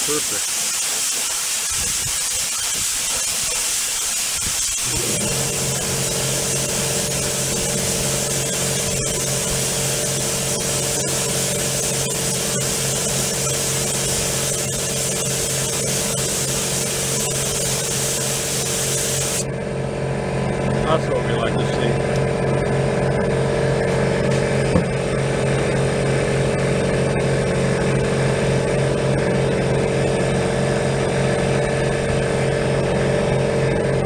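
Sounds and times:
spray gun hissing: 0.0s - 19.4s
steady motor hum: 0.0s - 34.0s.

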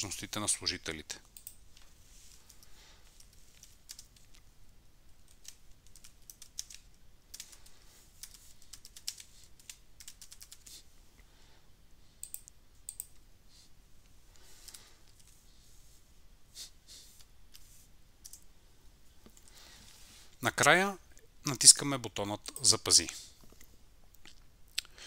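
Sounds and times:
computer keyboard typing: 1.4s - 1.6s, 2.4s - 4.4s, 5.2s - 10.7s, 12.2s - 13.2s, 18.2s - 18.4s.

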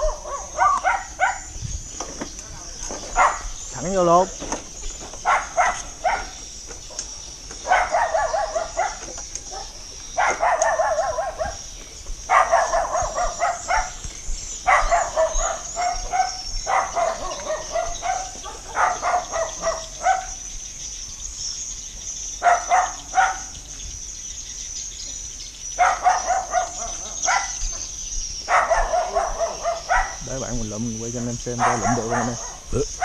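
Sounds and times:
dog barking: 0.0s - 1.6s, 3.1s - 3.6s, 5.2s - 7.0s, 7.6s - 11.7s, 12.3s - 14.0s, 14.6s - 20.4s, 22.4s - 23.6s, 25.8s - 27.8s, 28.5s - 30.4s, 31.4s - 33.0s
high-pitched insect drone: 0.0s - 33.0s.

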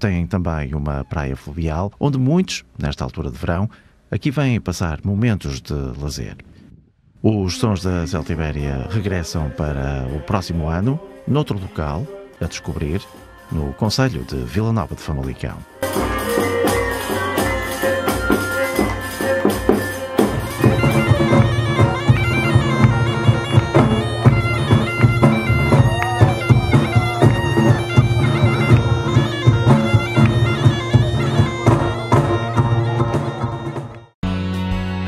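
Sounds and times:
bagpipe playing a tune: 12.5s - 35.0s
drums beating: 15.8s - 34.2s.

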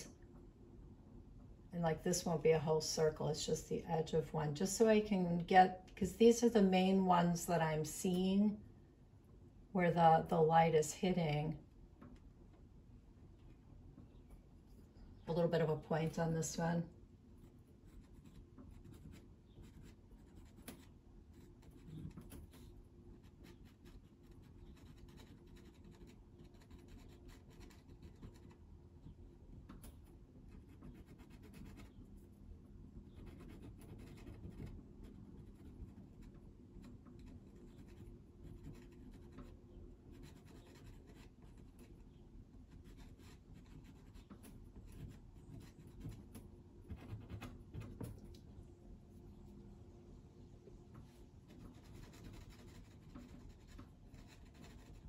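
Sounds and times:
pencil scratching on paper: 17.4s - 28.6s, 30.5s - 32.1s, 33.0s - 47.9s, 51.5s - 55.0s.

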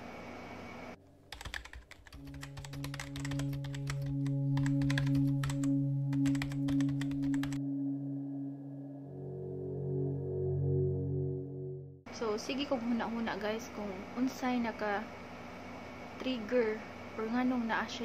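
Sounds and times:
keyboard typing clicks: 1.3s - 7.6s
low ambient music drone: 2.2s - 12.5s.

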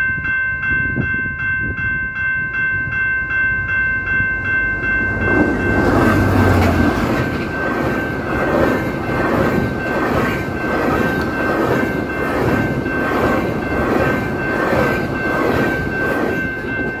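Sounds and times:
level crossing bells ringing: 0.0s - 17.0s
diesel locomotive engines: 2.8s - 17.0s
train wheels clattering: 5.0s - 17.0s.

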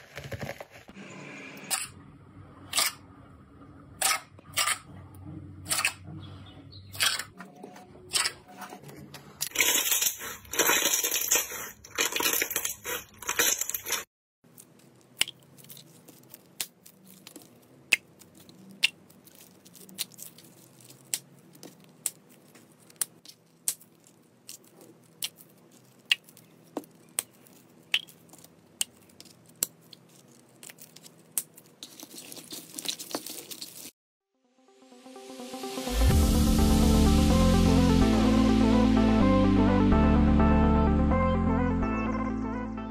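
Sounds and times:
plastic bags crinkling: 9.4s - 34.0s
slime squelching and crackling: 9.4s - 34.0s.

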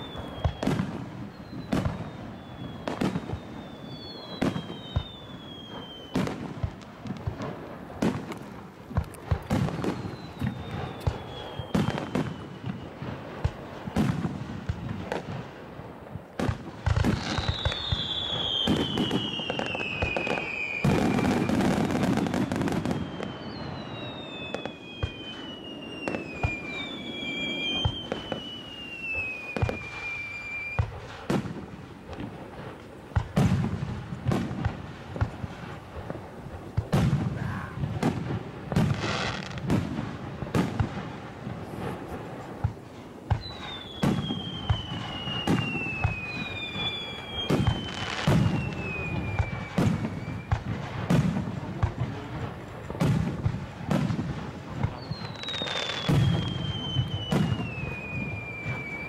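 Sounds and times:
falling firework whistles: 0.0s - 15.6s, 16.2s - 59.0s
firework crackle: 0.0s - 59.0s.

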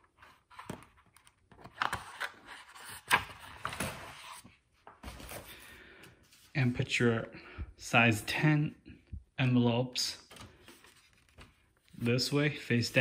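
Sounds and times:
paper rustling and sliding: 10.3s - 13.0s.

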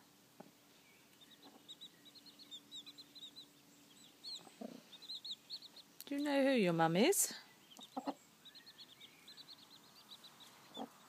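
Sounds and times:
chicks peeping: 0.4s - 11.0s
hen clucking softly: 1.4s - 1.9s, 4.2s - 5.9s, 7.7s - 8.2s, 10.5s - 11.0s.

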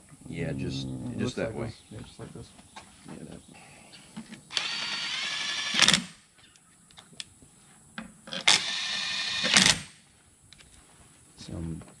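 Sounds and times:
cordless drill whine: 4.5s - 6.1s, 8.3s - 9.8s
drill clatter: 4.5s - 6.1s, 8.3s - 9.9s.

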